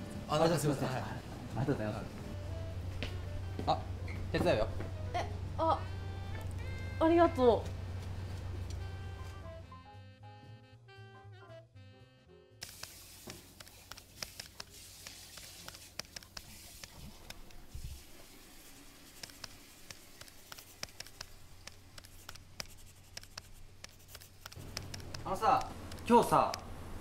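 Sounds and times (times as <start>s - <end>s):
low steady hum: 0.0s - 9.6s
light clicks and taps: 12.8s - 17.6s, 19.2s - 26.7s
faint scratching: 20.2s - 25.4s.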